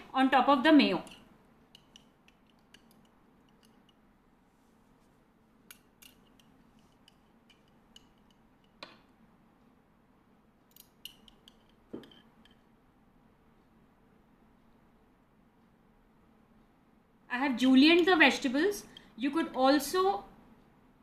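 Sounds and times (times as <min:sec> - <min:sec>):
metal spoon clinking in glass jar: 0:01.0 - 0:04.0, 0:10.7 - 0:12.6.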